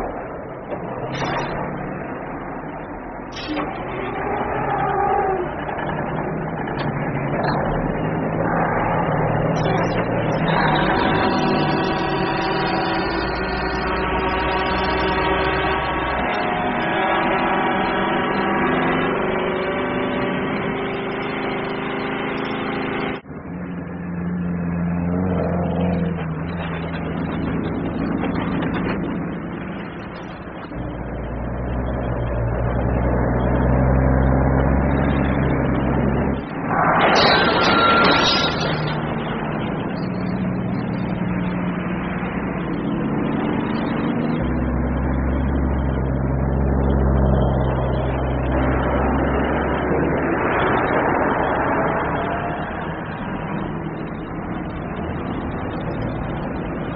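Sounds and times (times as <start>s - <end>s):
truck diesel engines rumbling: 0.0s - 56.9s.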